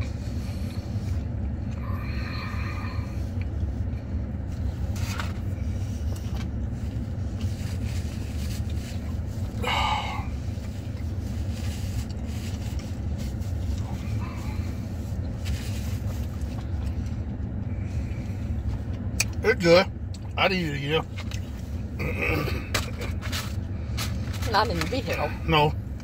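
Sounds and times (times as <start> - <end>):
truck engine rumble inside cab: 0.0 - 26.0.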